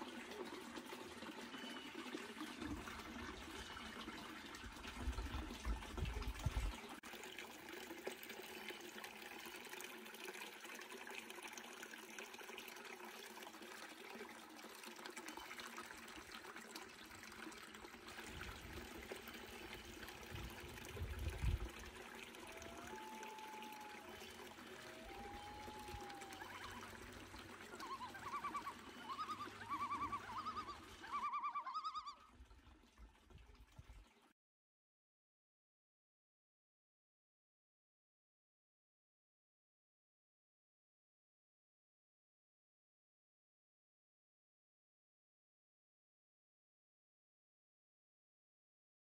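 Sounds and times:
brook trickling: 0:00.0 - 0:34.4.

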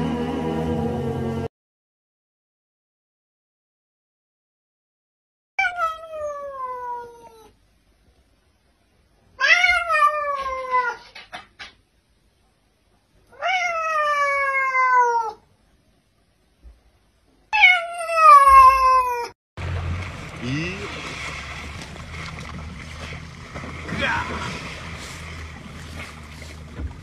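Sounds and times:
cat meowing: 0:05.6 - 0:07.6, 0:09.4 - 0:11.2, 0:13.3 - 0:15.4, 0:17.5 - 0:19.3.

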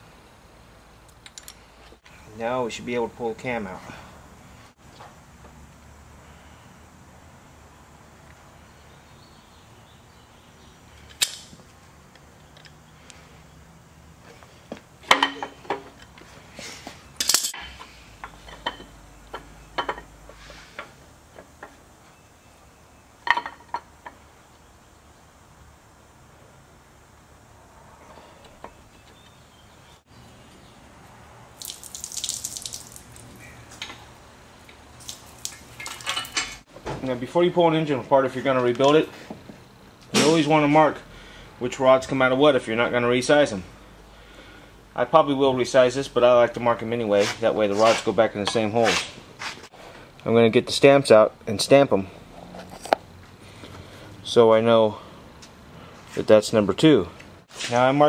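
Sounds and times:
sharp metallic click: 0:11.1 - 0:11.5
faint shop hum: 0:32.5 - 0:58.0.

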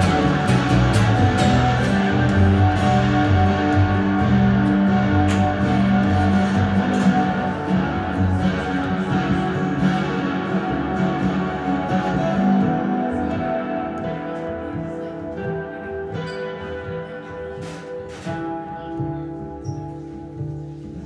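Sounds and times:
plucked double bass: 0:00.0 - 0:16.3
acoustic guitar strumming: 0:00.0 - 0:21.0.

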